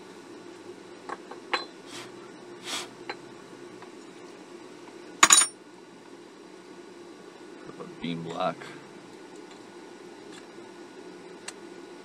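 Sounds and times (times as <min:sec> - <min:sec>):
low steady hum: 0:00.0 - 0:12.0
metallic clatter with ring: 0:05.2 - 0:05.6.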